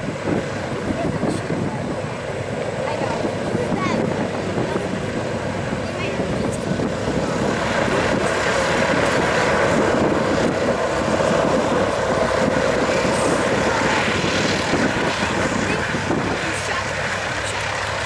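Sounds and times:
propeller engines drone: 0.0s - 18.0s.

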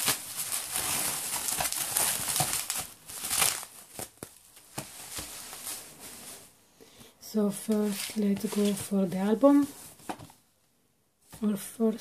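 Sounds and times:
bubble wrap crinkling: 0.0s - 6.6s, 7.7s - 10.2s.

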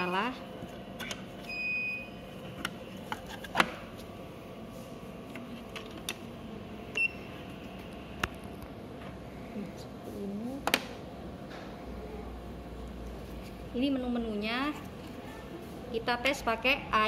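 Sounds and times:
faint hum: 0.0s - 17.0s
short electronic beeps: 7.0s - 7.3s.

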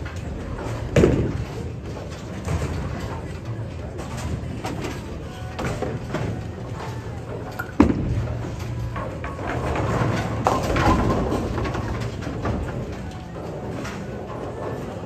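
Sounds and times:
bowling ball rolling: 0.1s - 15.0s
bowling pins crashing: 7.5s - 13.0s
bowling ball thudding on lane: 7.6s - 8.4s.

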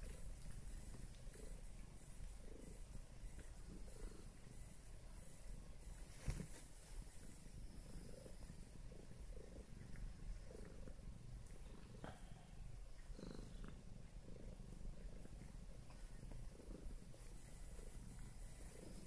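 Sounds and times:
cat purring: 0.0s - 19.0s.

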